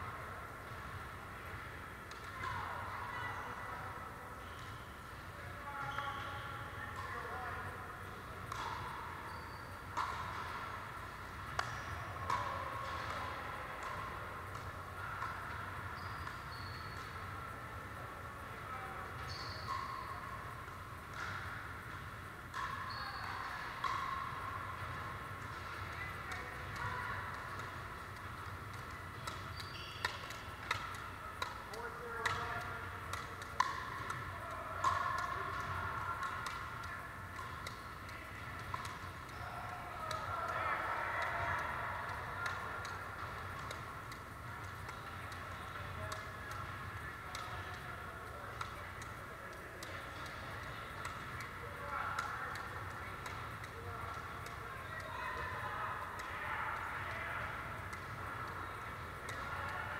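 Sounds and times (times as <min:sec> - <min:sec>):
paddles hitting a plastic ball: 0:08.4 - 0:09.0, 0:21.0 - 0:40.6, 0:41.2 - 0:59.9.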